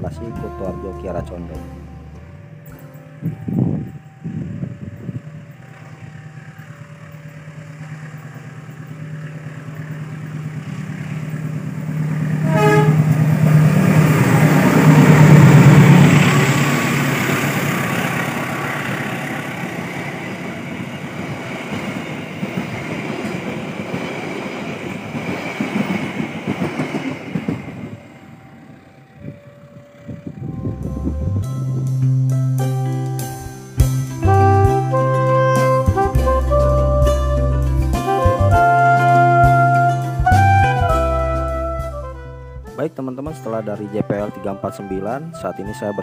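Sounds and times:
train horn: 0.0s - 2.7s, 11.9s - 21.2s, 34.2s - 46.0s
two-note crossing alarm: 0.0s - 20.7s, 27.8s - 32.1s
diesel locomotive engine drone: 0.0s - 43.8s
train wheels clattering over rails: 5.4s - 28.2s.

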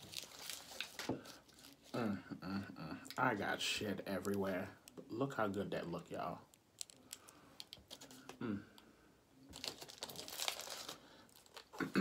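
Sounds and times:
aluminium foil crinkling: 0.0s - 2.0s, 5.4s - 8.3s, 9.5s - 11.8s.

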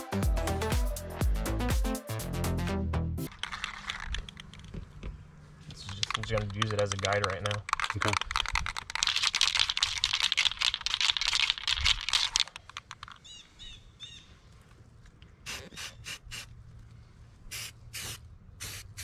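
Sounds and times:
aerosol can mixing ball rattling: 3.3s - 4.7s, 5.8s - 13.2s
spray can hissing bursts: 15.4s - 16.5s, 17.5s - 19.0s.

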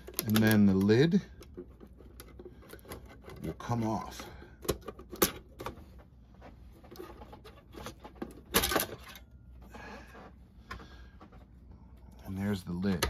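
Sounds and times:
plastic clicks and rattles: 0.0s - 3.5s.

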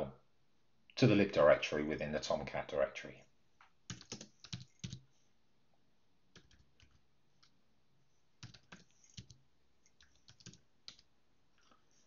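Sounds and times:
computer keyboard typing: 3.9s - 5.1s, 6.3s - 7.5s, 8.4s - 11.1s.

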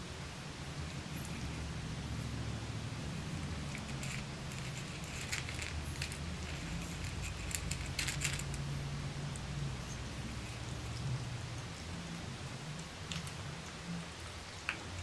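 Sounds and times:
steady low hum: 0.0s - 15.0s
puppies crunching kibble: 3.1s - 15.0s.

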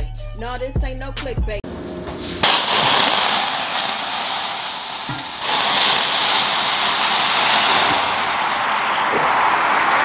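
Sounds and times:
broth pouring and splashing: 2.4s - 9.0s.

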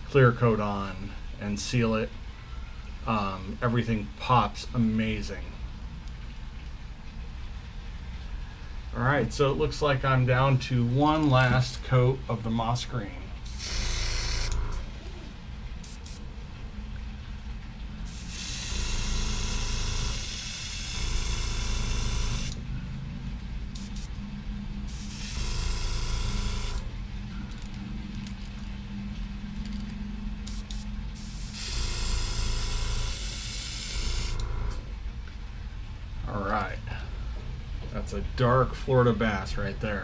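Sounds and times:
low steady hum: 0.0s - 40.0s
airbrush spraying hiss: 15.8s - 16.3s, 18.1s - 22.6s, 23.7s - 24.2s, 24.9s - 25.6s, 30.4s - 31.9s.

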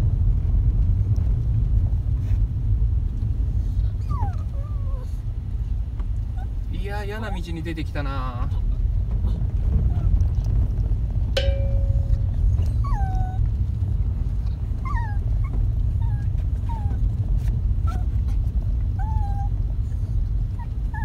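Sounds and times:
car engine and road rumble: 0.0s - 21.0s
dog whining: 3.9s - 5.2s, 6.3s - 6.6s, 11.4s - 13.5s, 14.8s - 17.0s, 17.8s - 18.2s, 19.0s - 21.0s.

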